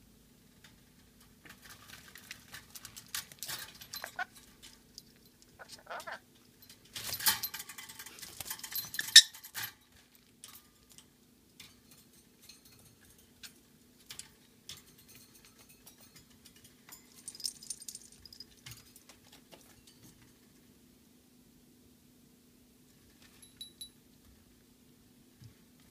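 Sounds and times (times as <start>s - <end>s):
metal cage rattling: 0.7s - 20.2s.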